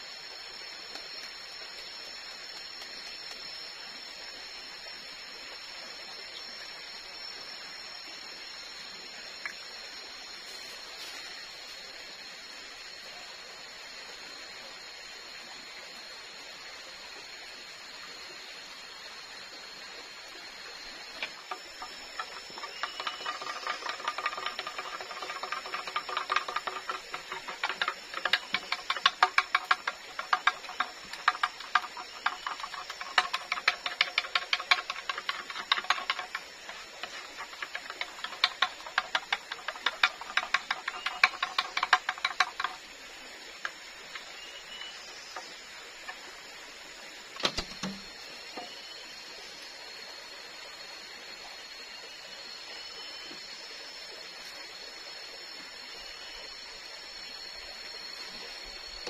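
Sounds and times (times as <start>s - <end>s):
spoon scraping bamboo tube: 21.3s - 42.8s.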